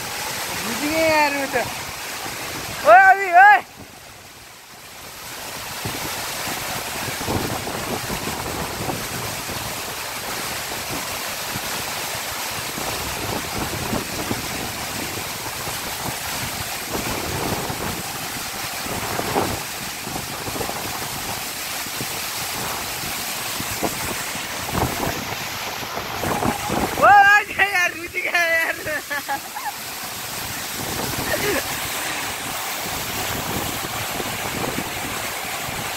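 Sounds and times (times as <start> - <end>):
waterfall rushing onto rocks: 0.0 - 35.9
wind hitting microphone: 23.5 - 27.1, 30.3 - 35.9.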